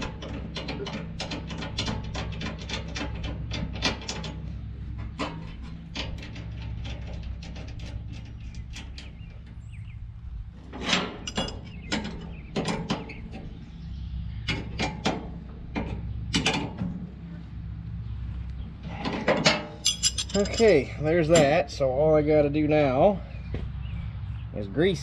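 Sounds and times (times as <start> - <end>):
steady low hum: 0.0 - 24.9
wrench clinking on steel parts: 10.8 - 12.2, 19.4 - 21.6.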